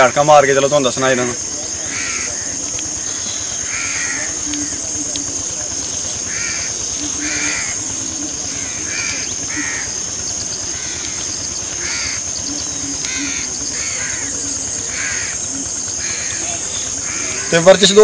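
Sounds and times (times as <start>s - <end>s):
high-pitched hiss: 0.0s - 18.0s
bird giving short calls: 6.3s - 10.1s, 10.7s - 17.7s.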